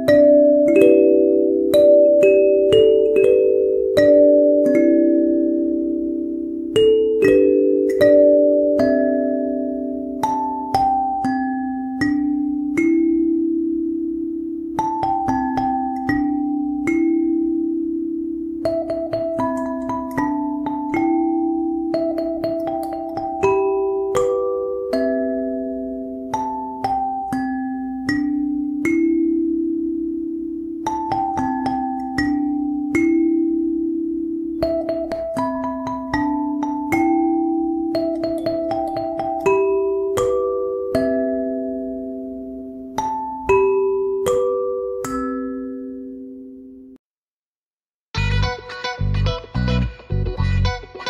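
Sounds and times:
bell-like mallet percussion: 0.0s - 14.0s, 14.7s - 18.0s, 18.6s - 30.1s, 30.8s - 46.6s
struck notes ringing out: 48.2s - 51.0s.

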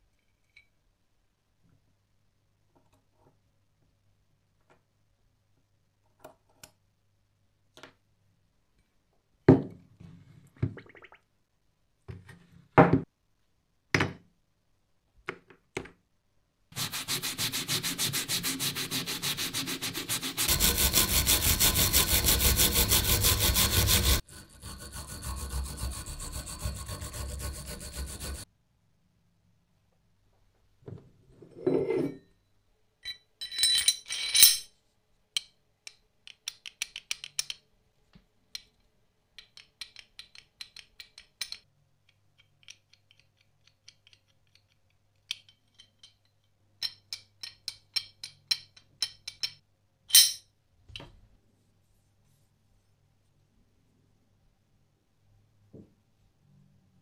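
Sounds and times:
scrubbing metal: 16.8s - 28.5s
metal parts clinking on wood: 33.0s - 34.7s.

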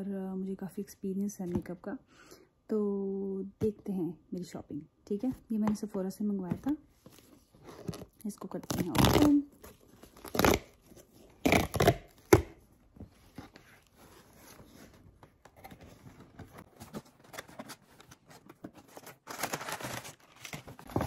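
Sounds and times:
cardboard tear strip ripping: 8.7s - 9.4s, 10.1s - 10.8s, 11.4s - 12.5s
paper packing crinkling: 13.4s - 21.0s.

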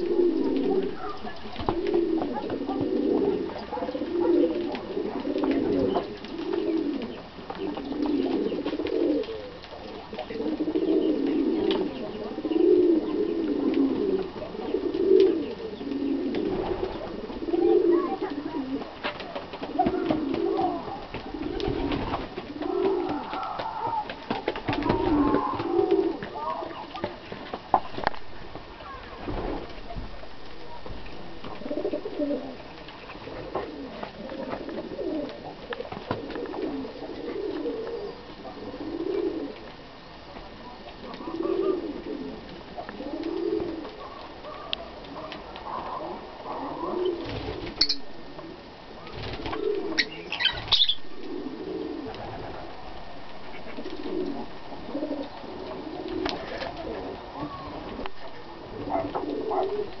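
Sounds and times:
lovebirds chirping: 0.0s - 13.6s, 37.8s - 38.4s, 47.8s - 48.1s, 49.9s - 51.2s
bird cooing: 0.0s - 27.1s, 30.6s - 39.7s, 40.6s - 60.0s.

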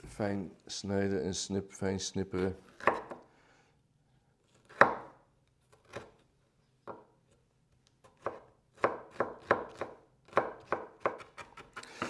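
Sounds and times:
knife chopping on wooden board: 2.8s - 3.2s, 4.6s - 5.2s, 8.1s - 11.7s.

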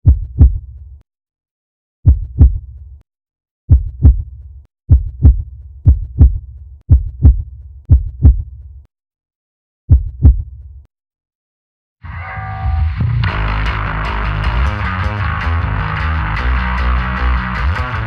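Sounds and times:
heartbeat thumps: 0.0s - 0.7s, 2.0s - 2.7s, 3.7s - 8.6s, 9.9s - 10.6s.

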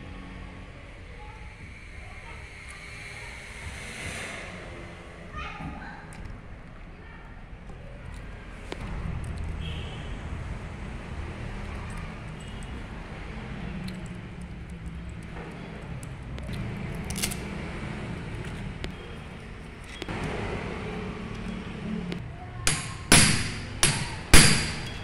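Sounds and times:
metal tools handled: 17.1s - 17.4s
wrench knocking on metal: 22.6s - 25.0s.

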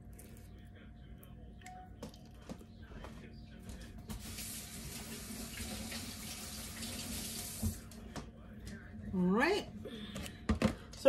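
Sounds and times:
tap water running into sink: 4.2s - 7.8s.

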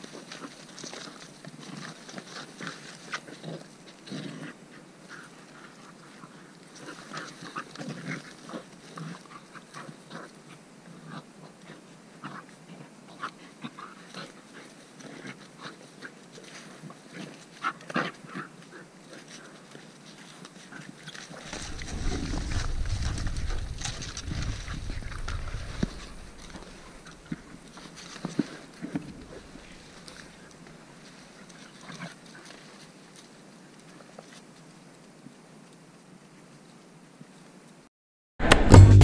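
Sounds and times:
animals growling and snarling: 0.3s - 18.6s, 20.7s - 30.6s
scuffling: 21.3s - 30.7s.

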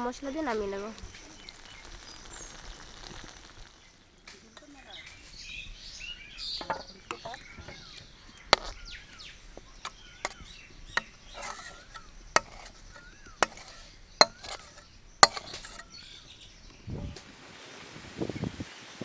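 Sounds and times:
birds chirping: 0.0s - 17.3s
metal spoon scraping a pan: 4.5s - 17.2s.

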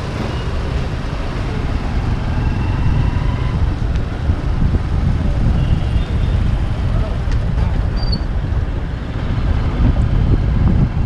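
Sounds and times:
engine and road rumble: 0.0s - 11.0s
wind buffeting microphone: 0.0s - 11.0s.

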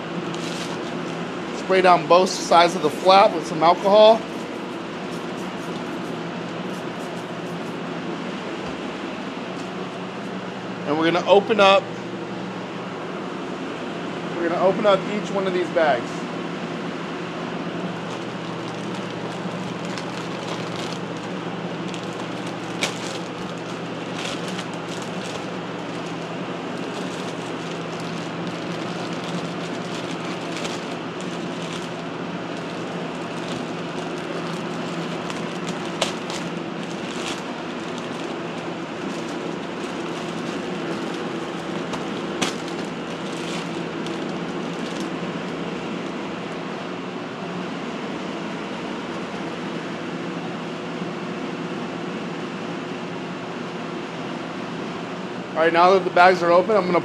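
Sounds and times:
plastic bags crackling: 0.0s - 1.7s, 17.8s - 46.5s
blower fan humming: 0.0s - 57.0s.

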